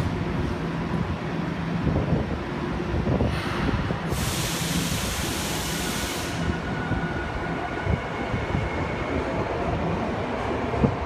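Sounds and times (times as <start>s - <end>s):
subway train rumbling: 0.0s - 11.0s
hiss of air: 3.3s - 6.7s.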